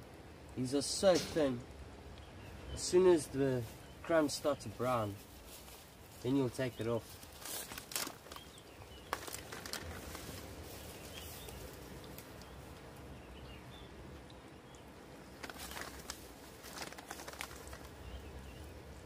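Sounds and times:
short crackles: 0:07.0 - 0:12.6, 0:15.4 - 0:18.0.

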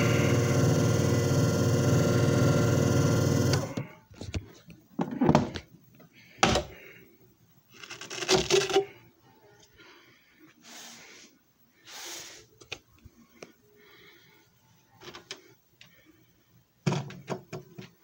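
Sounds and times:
short hissing noises: 0:10.6 - 0:12.6
knocks and clatter of handling: 0:16.8 - 0:18.0.

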